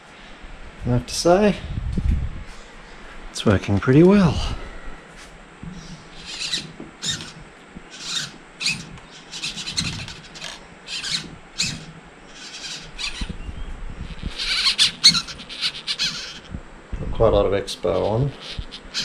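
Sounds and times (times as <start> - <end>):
servo driving gears in bursts: 6.2 - 13.4, 14.1 - 16.5.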